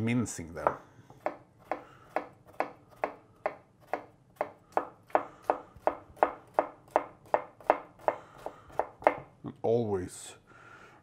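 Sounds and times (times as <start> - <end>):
knife chopping on wooden board: 0.6 - 9.3.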